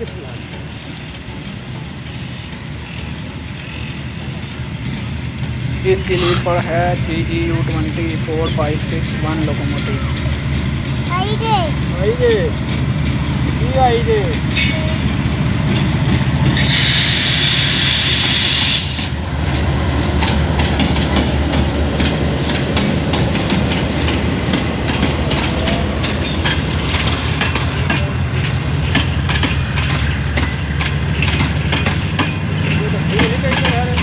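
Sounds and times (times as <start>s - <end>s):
diesel engine droning: 0.0s - 34.0s
train wheels clickety-clack: 0.0s - 34.0s
loud hiss: 16.6s - 19.2s.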